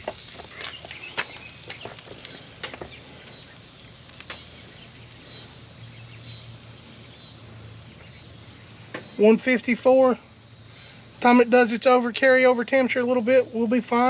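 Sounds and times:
low outdoor hum: 0.0 - 14.0
faint clicks or chirps: 6.6 - 6.8.

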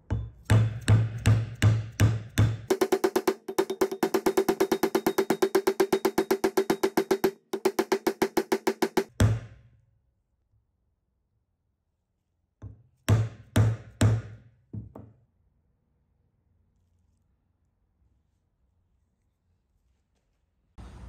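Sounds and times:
fast pitched drum run: 2.7 - 9.1.

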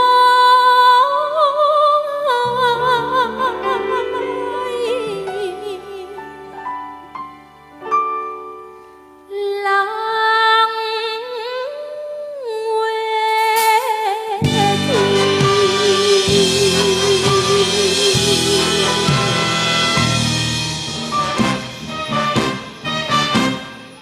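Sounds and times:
woman singing with vibrato: 0.0 - 6.7, 9.3 - 20.1
band with bass and drums: 13.4 - 24.0.

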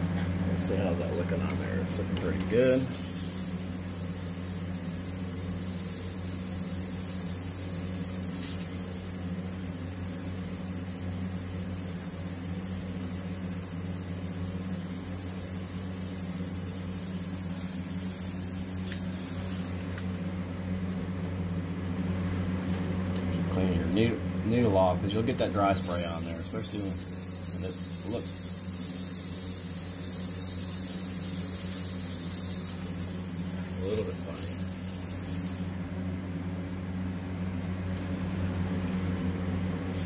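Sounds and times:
airbrush spraying air hiss: 2.6 - 20.7, 25.8 - 35.8.

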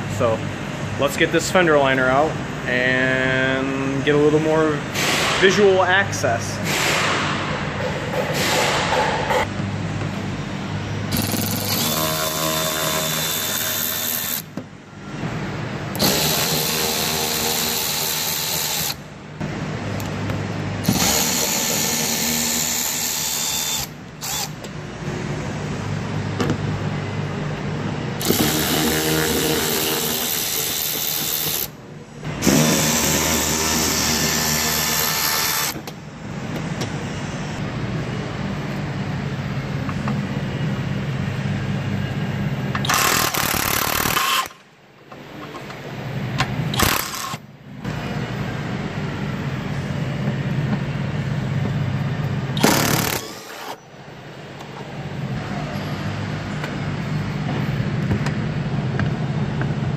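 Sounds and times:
cordless power tool spinning bolts: 11.1 - 14.4, 16.0 - 19.0, 20.8 - 24.6, 28.2 - 31.7, 42.8 - 44.6, 46.7 - 47.4, 52.6 - 53.8.

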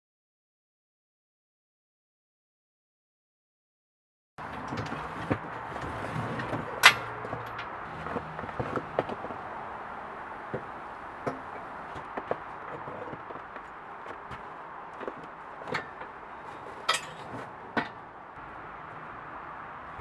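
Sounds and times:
metal clanks of engine hoist: 4.4 - 18.3.

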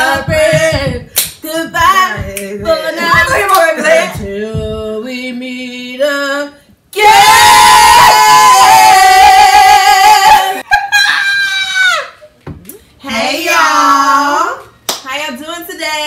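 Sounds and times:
women singing together: 0.0 - 10.6, 13.0 - 14.7.

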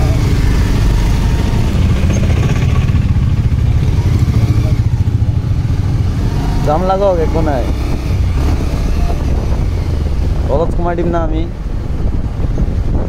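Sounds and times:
motorcycle engine low rumble: 0.0 - 13.0.

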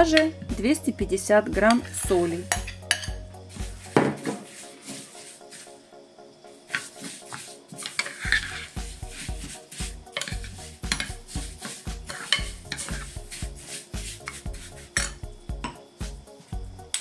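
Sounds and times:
background music with steady beat: 0.0 - 17.0
metal spoon scraping salt in glass dish: 1.6 - 5.7, 6.7 - 15.2.

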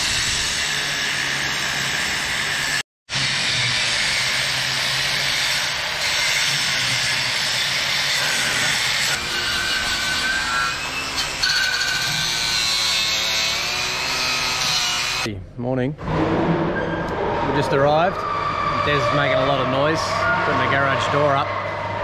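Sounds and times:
angle grinder grinding steel: 0.0 - 15.3.

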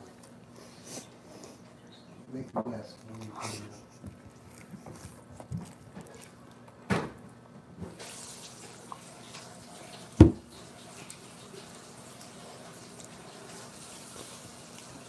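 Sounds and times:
dull thumps on tabletop: 10.2 - 10.4.

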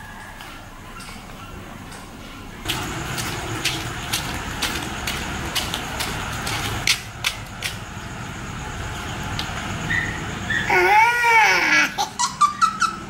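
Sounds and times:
outdoor background hiss: 0.0 - 13.0
flip-flop footsteps on concrete: 2.6 - 7.8.

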